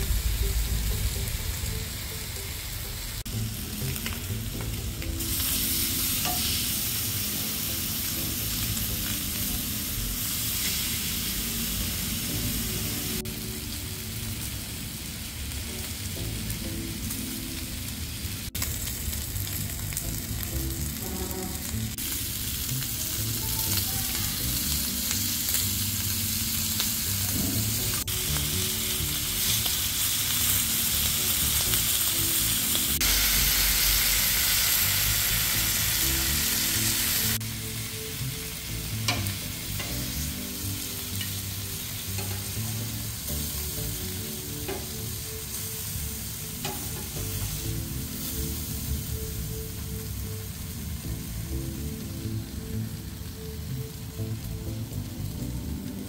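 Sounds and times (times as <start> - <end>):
pork sizzling on grill pan: 0.0 - 56.0.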